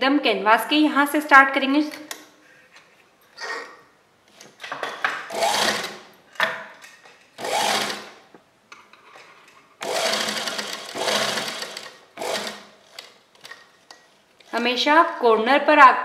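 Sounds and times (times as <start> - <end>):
sewing machine stitching: 5.3 - 6.0, 7.4 - 8.2, 9.8 - 13.7.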